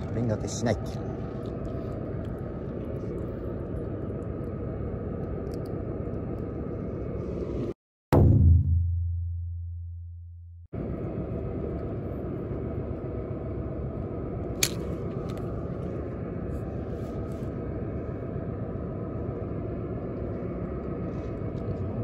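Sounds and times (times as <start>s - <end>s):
low outdoor rumble: 0.0s - 9.9s, 10.6s - 22.0s
sharp click: 14.6s - 15.4s.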